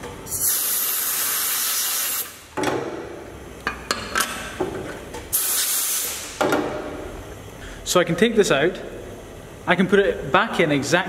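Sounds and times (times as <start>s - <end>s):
compressed air blow gun hissing: 0.3s - 2.4s, 5.3s - 6.4s.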